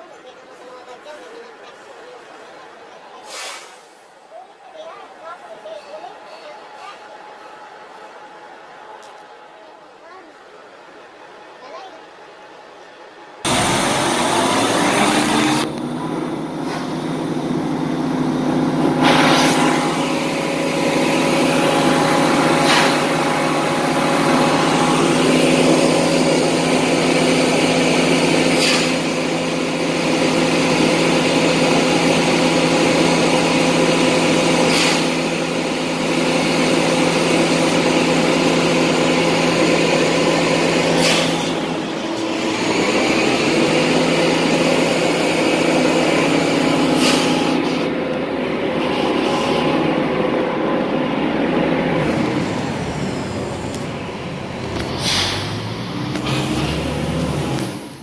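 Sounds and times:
short sharp hisses: 0:03.2 - 0:04.1, 0:28.6 - 0:29.0, 0:34.6 - 0:35.2, 0:40.9 - 0:41.6, 0:54.8 - 0:55.6
diesel engine running: 0:13.4 - 0:58.0.

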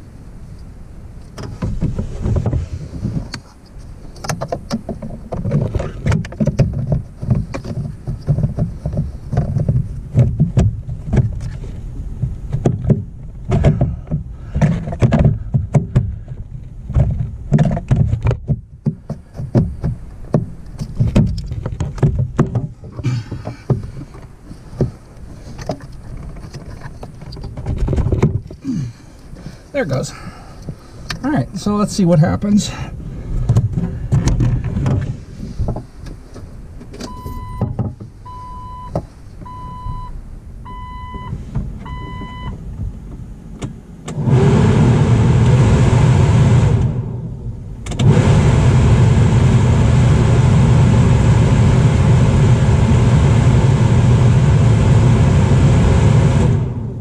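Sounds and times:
plastic knocks and scraping: 0:01.3 - 0:28.7, 0:33.4 - 0:38.2.

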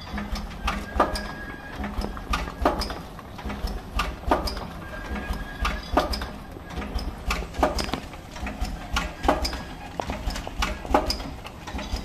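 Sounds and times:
packing machine clacking: 0:00.0 - 0:12.0.

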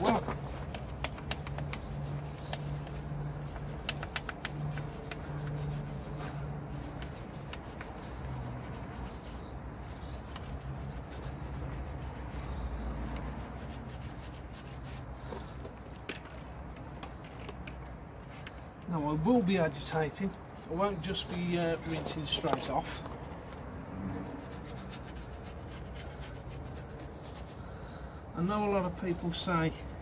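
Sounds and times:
brush scrubbing wheel: 0:00.0 - 0:15.4, 0:20.9 - 0:27.7
small birds chirping: 0:00.0 - 0:23.7, 0:24.4 - 0:30.0.

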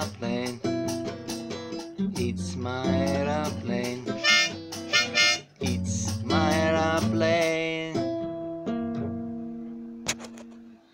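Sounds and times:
acoustic guitar strumming: 0:00.0 - 0:10.7
harmonica melody: 0:04.2 - 0:05.5.

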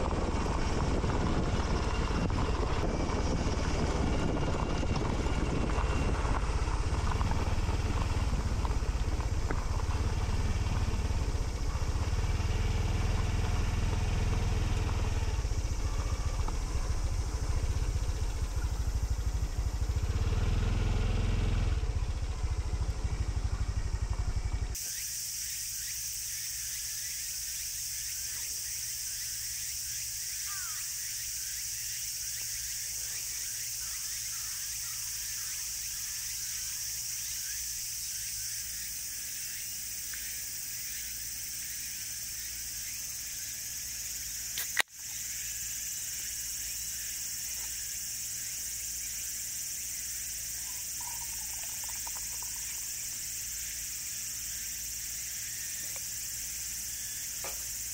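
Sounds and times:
motorcycle engine rumbling: 0:00.0 - 0:24.8, 0:28.6 - 0:57.9
steady high hiss: 0:24.8 - 0:32.7.

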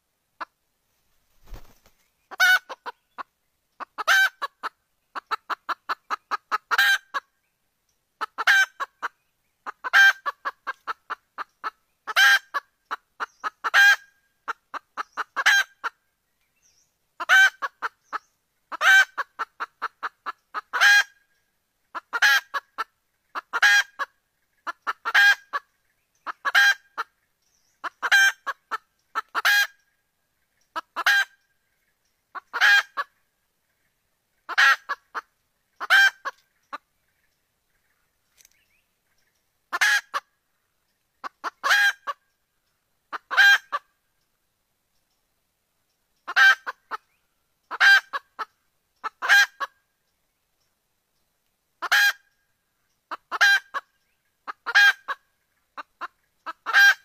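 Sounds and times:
hen cackling: 0:01.4 - 0:07.3, 0:08.2 - 0:16.0, 0:17.2 - 0:21.2, 0:21.9 - 0:27.2, 0:27.8 - 0:29.8, 0:30.7 - 0:31.4, 0:32.3 - 0:33.2, 0:34.5 - 0:36.8, 0:39.7 - 0:40.3, 0:41.2 - 0:42.2, 0:43.1 - 0:43.9, 0:46.3 - 0:47.0, 0:47.7 - 0:49.8, 0:51.8 - 0:52.2, 0:53.1 - 0:53.9, 0:54.5 - 0:55.2, 0:55.8 - 0:57.0.

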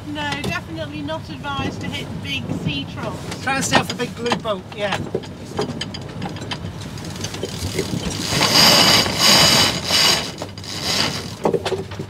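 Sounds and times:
winch ratcheting: 0:03.3 - 0:12.0.

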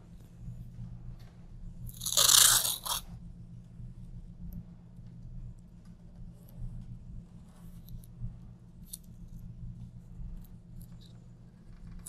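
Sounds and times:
steady low hum: 0:00.0 - 0:12.0
tape and paper crackling: 0:01.9 - 0:03.0.

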